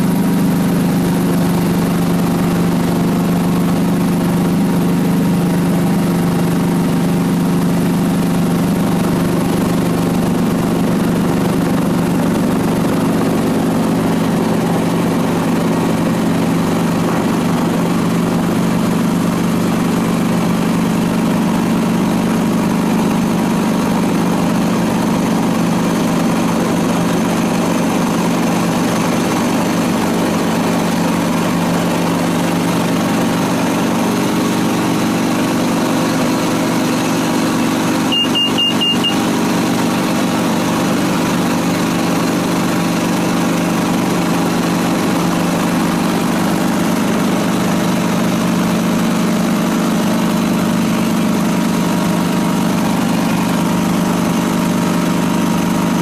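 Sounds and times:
high electronic beeps: 38.1s - 39.2s.

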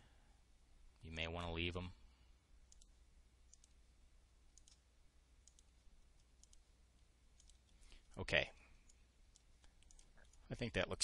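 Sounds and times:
faint computer mouse clicks: 2.7s - 2.9s, 3.5s - 3.8s, 4.6s - 4.8s, 5.4s - 6.6s, 7.4s - 7.8s, 8.8s - 10.4s.

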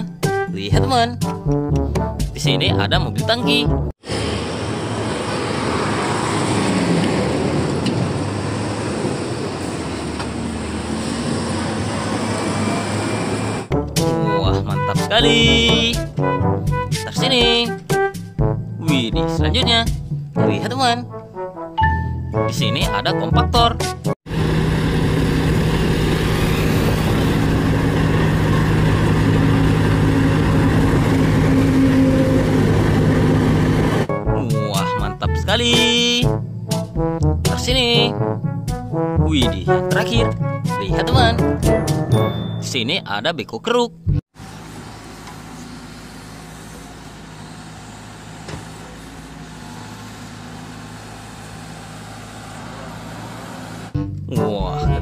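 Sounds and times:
road roller diesel engines droning: 4.0s - 14.3s, 24.3s - 34.1s, 44.4s - 54.0s.

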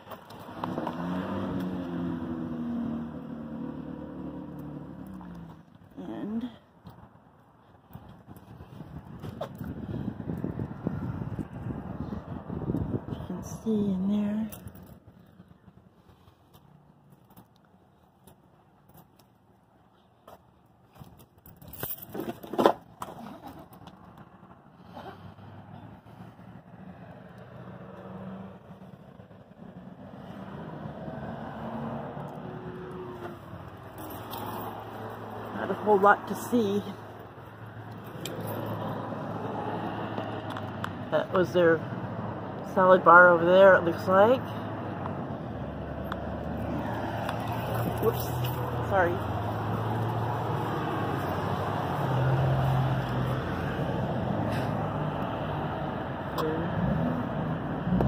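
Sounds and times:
traffic noise: 0.0s - 58.0s
vehicle engine rumbling: 0.0s - 58.0s.

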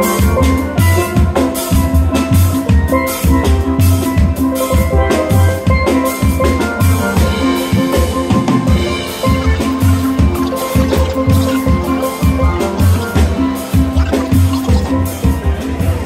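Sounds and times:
drum kit beat: 7.6s - 15.2s.

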